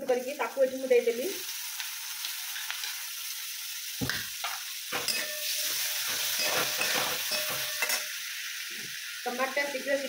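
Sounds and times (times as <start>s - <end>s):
tomatoes sizzling in oil: 0.0s - 10.0s
metal spatula scraping pan: 4.9s - 8.2s.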